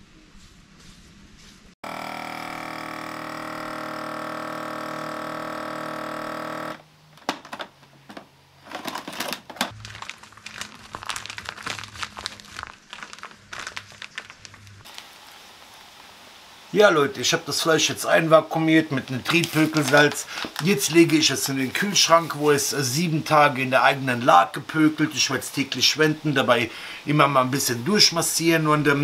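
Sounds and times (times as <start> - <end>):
vacuum sealer pump humming: 1.8 - 9.7
plastic bag crinkling: 7.2 - 15.3, 19.0 - 21.6.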